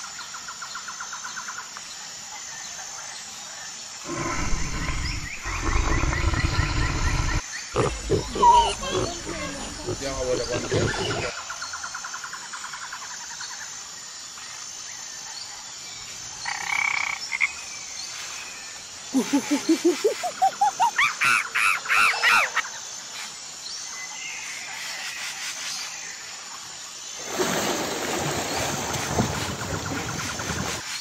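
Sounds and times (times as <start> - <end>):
high insect drone: 0.0 - 31.0
pulsed animal calls: 4.1 - 11.3.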